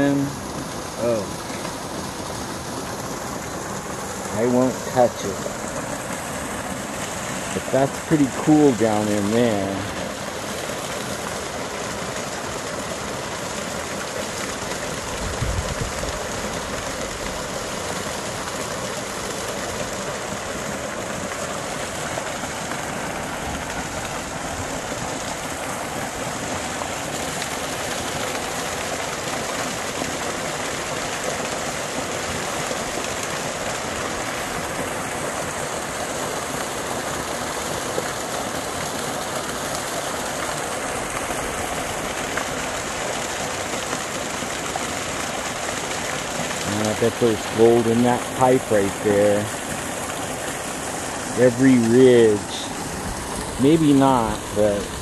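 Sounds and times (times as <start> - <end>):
creek water rushing: 0.0 - 55.0.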